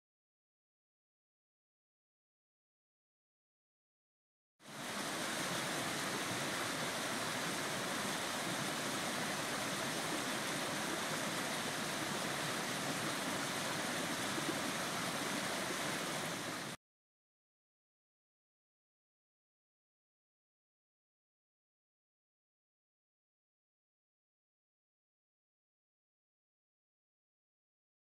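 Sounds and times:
stream rushing over rocks: 4.7s - 16.8s.

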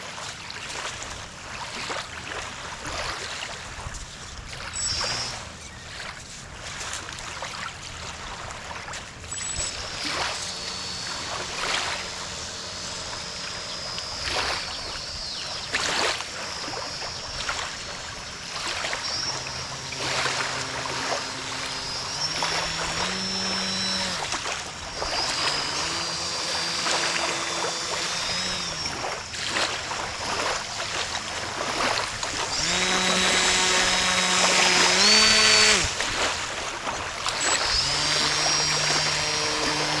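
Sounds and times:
small waves lapping: 0.1s - 40.0s
model boat motor whining: 4.7s - 5.7s, 9.2s - 40.0s.

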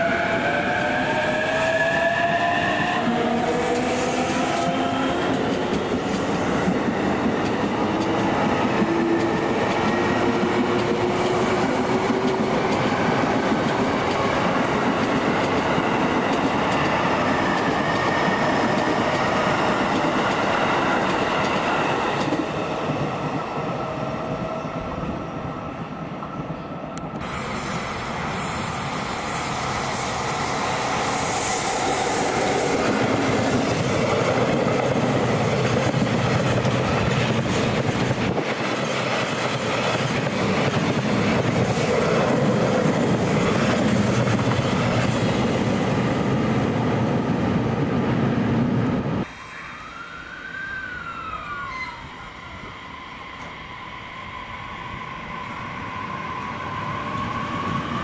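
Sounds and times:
train wheels clattering on rails: 3.0s - 23.5s, 28.4s - 46.0s.

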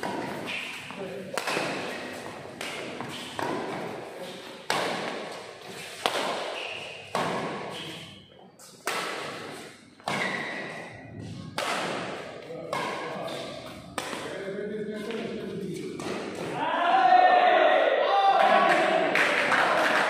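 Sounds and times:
racket hitting shuttlecock: 0.0s - 10.9s, 11.5s - 14.3s, 15.9s - 16.6s.

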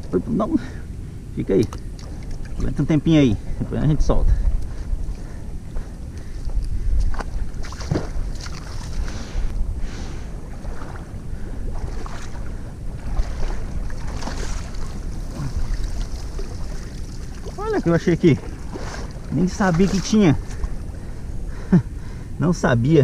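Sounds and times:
wind rumbling on microphone: 0.0s - 23.0s
water sloshing and splashing: 1.6s - 2.8s, 4.4s - 21.4s.

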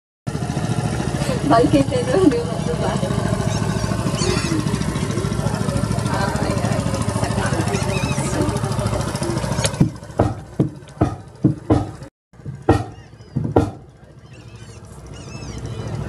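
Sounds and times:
engine running with even throb: 0.3s - 16.0s
short knocks: 9.7s - 13.9s.

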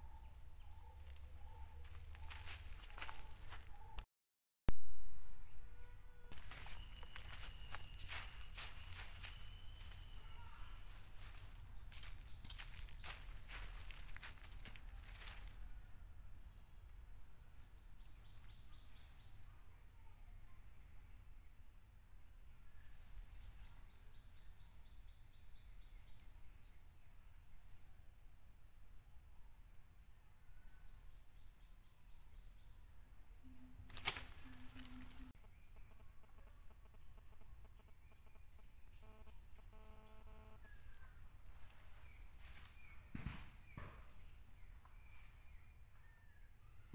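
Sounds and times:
insect drone: 0.0s - 3.8s, 4.8s - 46.9s
bird chirps: 0.0s - 4.0s, 4.8s - 15.6s, 30.6s - 46.9s.

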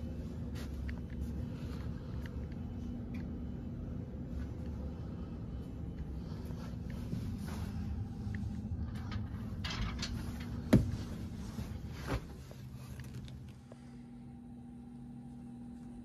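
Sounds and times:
air handler blower hum: 0.0s - 16.0s
rustling: 6.2s - 13.6s.

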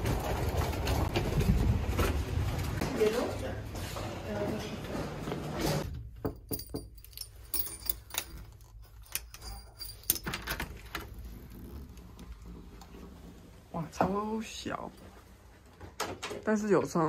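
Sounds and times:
key jangling against door lock: 6.4s - 11.0s.

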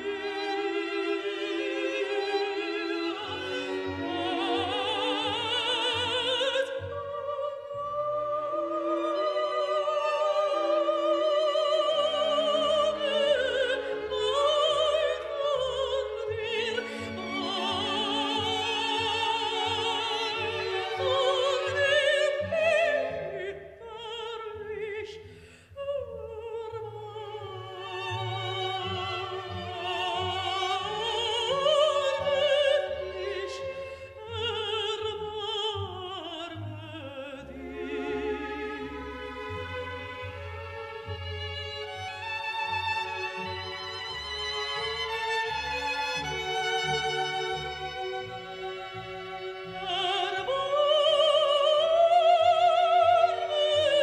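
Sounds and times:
operatic singing: 0.0s - 25.2s, 25.8s - 54.0s
orchestral strings and bass: 0.0s - 54.0s.

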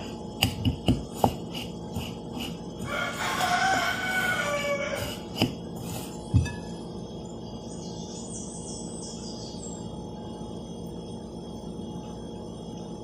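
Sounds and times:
rooster crowing: 2.8s - 5.2s.

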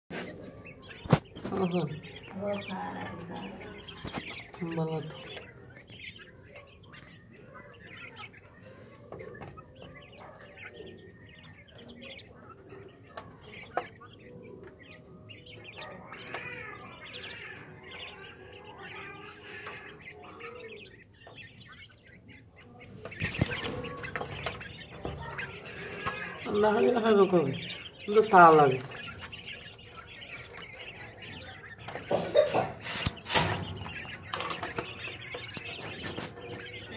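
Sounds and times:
quail chirping and calling: 0.1s - 36.9s.

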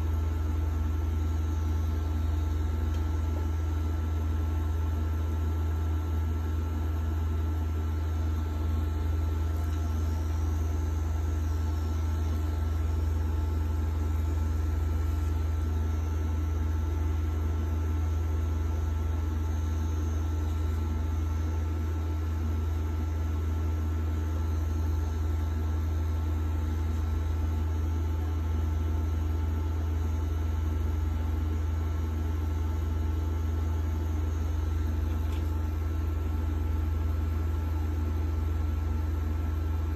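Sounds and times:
tattoo machine humming: 7.8s - 27.5s.

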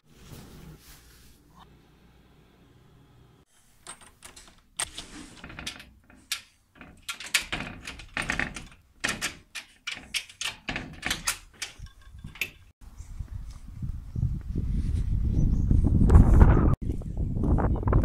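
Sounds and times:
door latch clicks: 3.8s - 12.6s
door handle rattles: 3.8s - 12.7s.

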